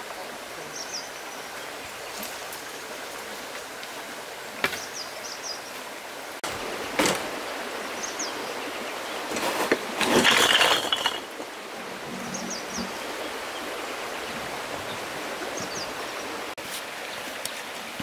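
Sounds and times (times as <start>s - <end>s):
river flowing: 0.0s - 18.0s
bricks clattering from wheelbarrow: 9.3s - 11.4s.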